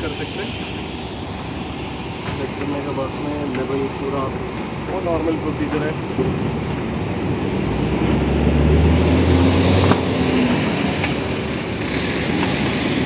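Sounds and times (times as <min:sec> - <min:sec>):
road noise: 0:00.0 - 0:13.0
vehicle engine passing: 0:07.2 - 0:13.0.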